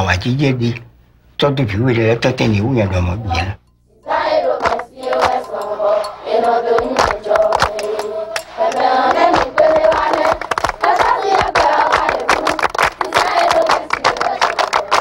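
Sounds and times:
children singing in unison: 3.9 - 15.0
hand-clapping: 4.5 - 15.0.

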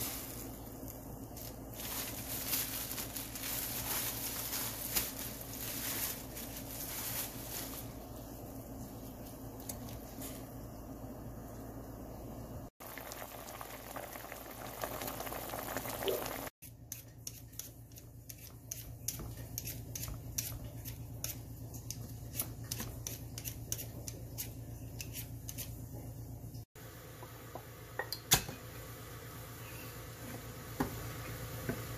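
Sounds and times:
pot simmering and bubbling: 8.0 - 18.9
peeler scraping potatoes: 16.9 - 21.4, 22.3 - 25.7.

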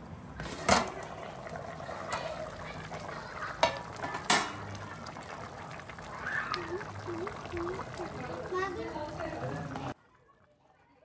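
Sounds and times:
curry bubbling: 0.4 - 10.0.

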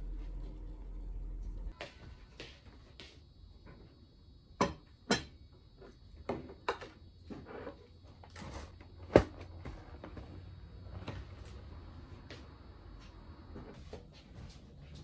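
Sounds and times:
dishes set down on wooden table: 4.6 - 5.4.

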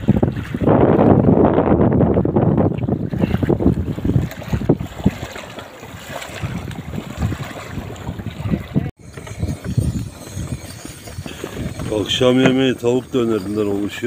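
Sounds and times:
wind buffeting microphone: 0.0 - 14.0
waves lapping on pebbles: 3.7 - 14.0.

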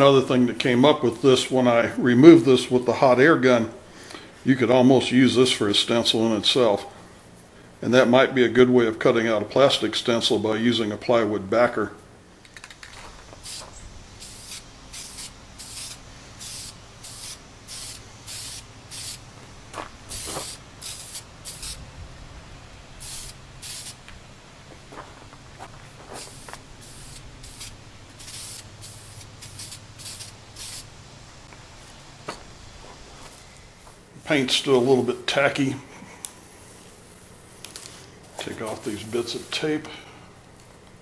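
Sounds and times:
spray paint can hissing: 12.5 - 21.9, 23.0 - 24.1, 26.1 - 31.0.

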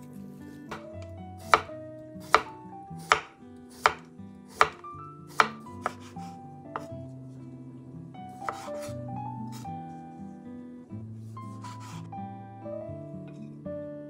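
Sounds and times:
knife slicing cucumber on board: 0.0 - 7.0, 8.4 - 9.6, 11.6 - 12.1.

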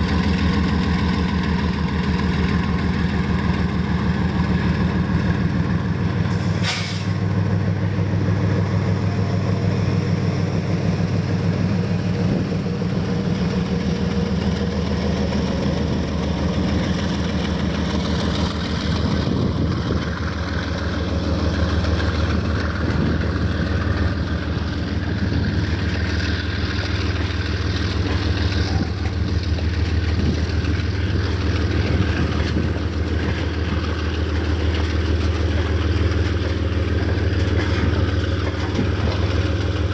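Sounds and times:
diesel locomotive engine: 0.0 - 39.9
train wagons rolling: 0.0 - 39.9
air hiss: 6.3 - 7.2.

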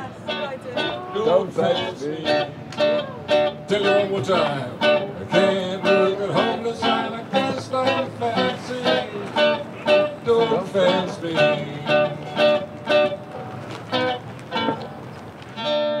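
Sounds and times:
acoustic guitar plucking notes: 0.0 - 16.0.

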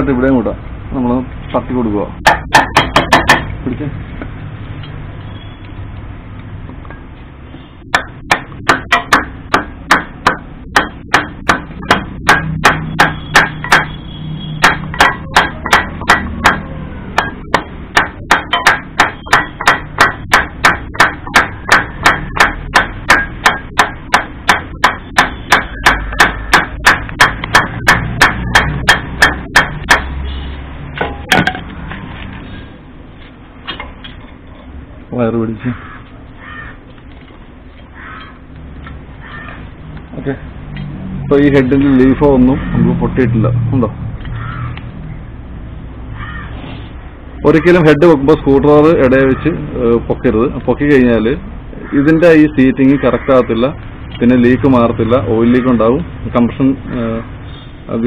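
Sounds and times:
block knocking on metal cylinder head: 2.2 - 3.6, 7.9 - 14.0, 14.6 - 30.2.

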